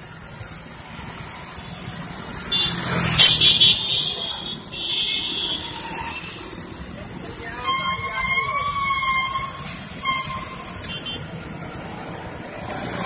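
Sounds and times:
street traffic: 0:00.0 - 0:13.0
high-pitched horn: 0:07.6 - 0:11.2.

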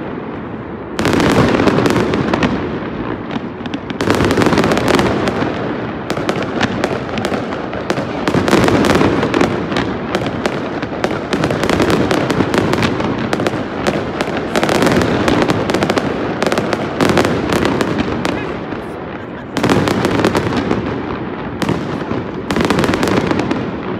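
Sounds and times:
fireworks cracks and pops: 0:00.0 - 0:23.9.

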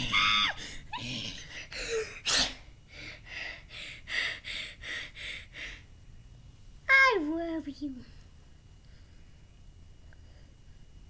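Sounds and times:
boy panting: 0:00.4 - 0:05.9.

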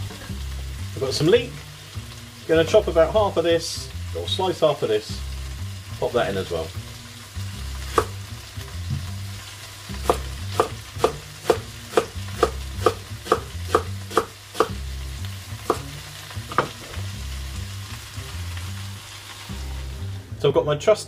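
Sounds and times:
food sizzling in a pan: 0:00.0 - 0:20.4
knife chopping on wooden board: 0:07.9 - 0:08.2, 0:10.0 - 0:14.8, 0:15.7 - 0:16.8.

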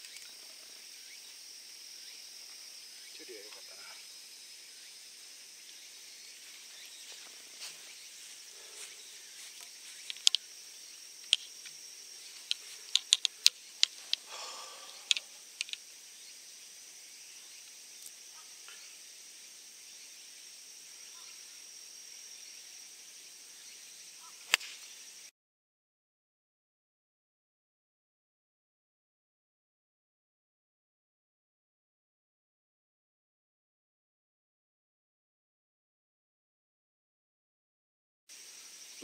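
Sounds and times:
high insect drone: 0:00.0 - 0:25.3, 0:38.3 - 0:39.0
sharp clicks: 0:09.6 - 0:10.5, 0:12.4 - 0:14.3, 0:14.9 - 0:15.8.

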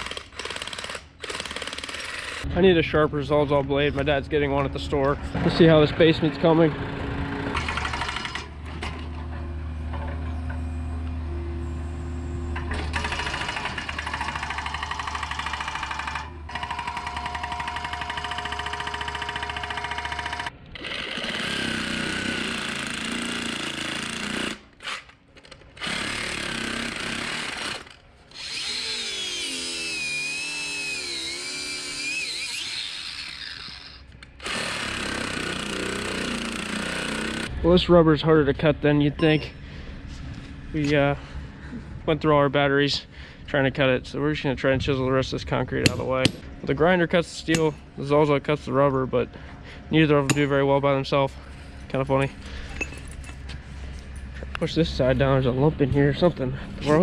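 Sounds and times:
excavator engine running: 0:00.0 - 0:24.0
reciprocating saw cutting rubber: 0:25.8 - 0:37.5.

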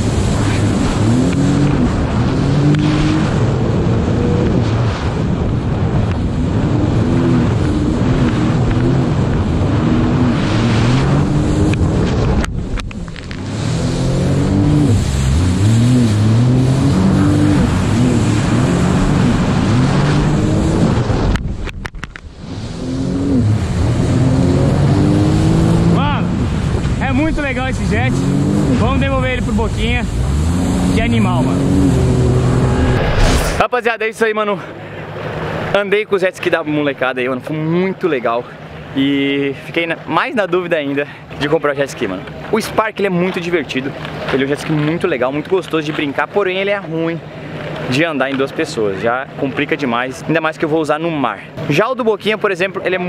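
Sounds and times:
jet ski engine revving: 0:00.0 - 0:21.7, 0:22.4 - 0:33.2, 0:34.7 - 0:53.0
spray and wind rushing: 0:00.0 - 0:33.7.

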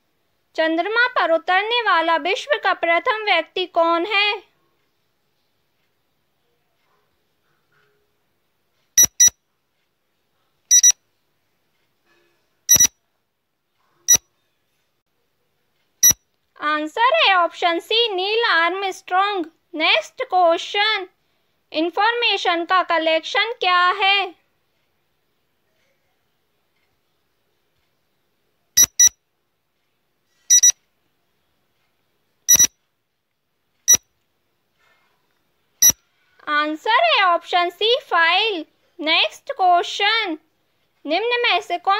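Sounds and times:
electronic countdown beeps: 0:09.0 - 0:09.4, 0:10.7 - 0:11.0, 0:12.7 - 0:13.0, 0:28.8 - 0:29.2, 0:30.5 - 0:30.8, 0:32.5 - 0:32.7.

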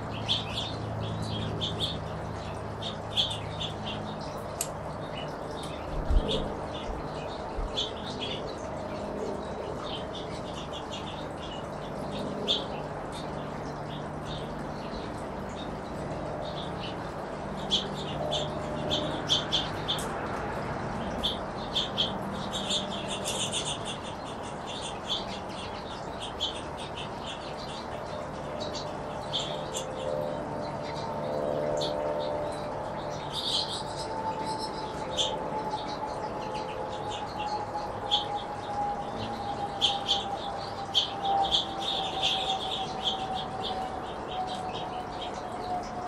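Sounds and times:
finches chirping: 0:21.0 - 0:46.0.

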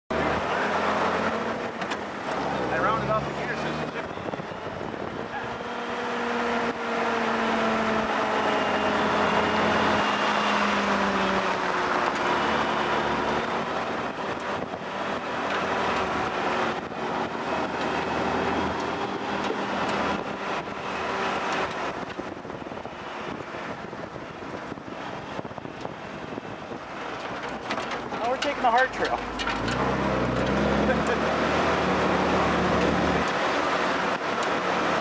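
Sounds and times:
jeep engine running: 0:00.1 - 0:35.0
wind rush and tyre noise: 0:03.8 - 0:30.7
short knocks and rattles: 0:27.1 - 0:30.6.

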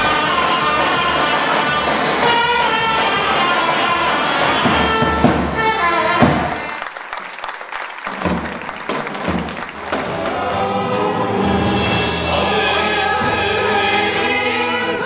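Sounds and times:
folk dance music: 0:00.0 - 0:15.0
audience clapping: 0:05.9 - 0:11.3.

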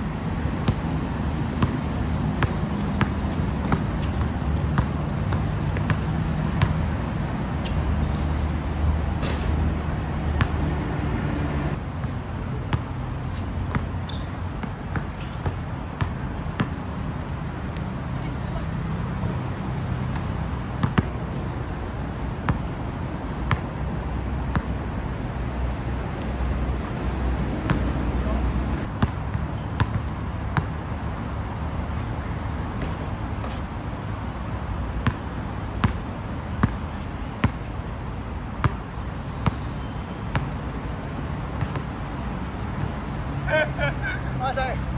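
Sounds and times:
basketball bouncing on hard court: 0:00.6 - 0:07.0, 0:17.7 - 0:21.2, 0:23.5 - 0:23.7, 0:24.5 - 0:24.8, 0:27.1 - 0:30.8, 0:35.0 - 0:35.2, 0:35.8 - 0:36.0, 0:36.6 - 0:36.8, 0:37.4 - 0:37.6, 0:40.3 - 0:40.8, 0:41.6 - 0:41.9.

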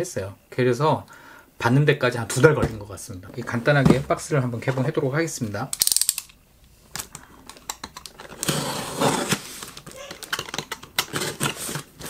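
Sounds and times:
packaging scraping and rustling: 0:08.1 - 0:12.0.

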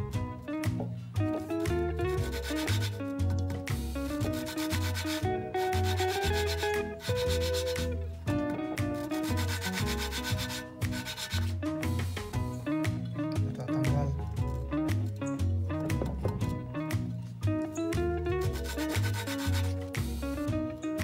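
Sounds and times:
guitar music: 0:00.0 - 0:21.0
valve rubbing gritty against seat: 0:04.0 - 0:07.9, 0:09.1 - 0:12.4, 0:18.5 - 0:20.4.

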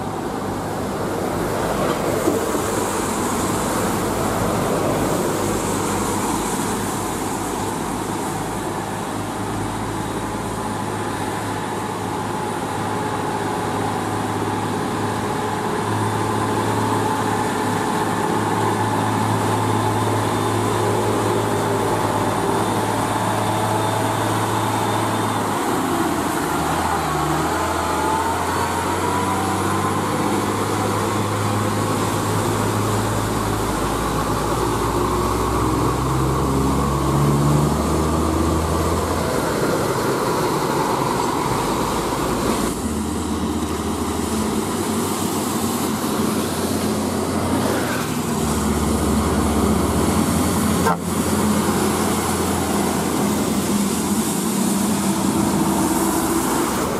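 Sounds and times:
diesel truck engine passing: 0:00.0 - 0:12.6, 0:13.4 - 0:56.9
tyre hiss on wet asphalt: 0:38.8 - 0:56.9.

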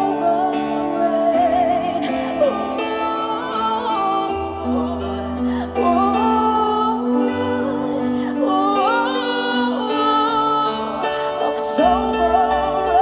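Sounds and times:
woman singing into microphone: 0:00.0 - 0:13.0.

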